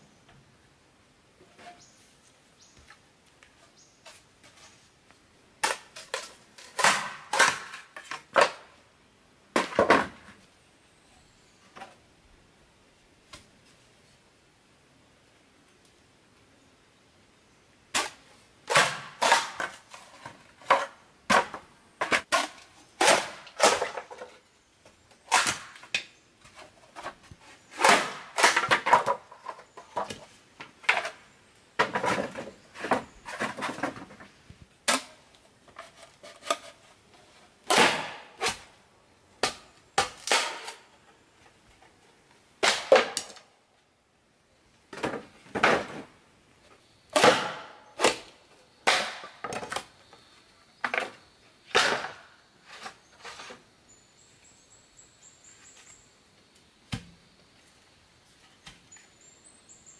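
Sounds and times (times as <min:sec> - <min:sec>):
bamboo knocking and clattering: 0:05.6 - 0:08.7, 0:09.5 - 0:10.4, 0:17.9 - 0:31.2, 0:31.8 - 0:38.7, 0:39.4 - 0:42.0, 0:42.6 - 0:43.5, 0:44.9 - 0:46.2, 0:47.2 - 0:49.9, 0:50.8 - 0:53.6, 0:56.9 - 0:57.2.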